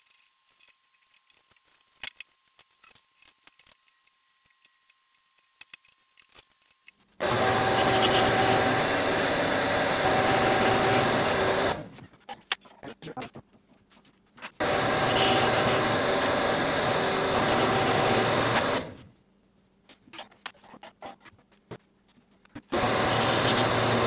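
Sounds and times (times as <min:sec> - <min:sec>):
drill press and vacuum whirring: 0:07.2 - 0:12.0, 0:14.6 - 0:19.1, 0:22.7 - 0:24.0.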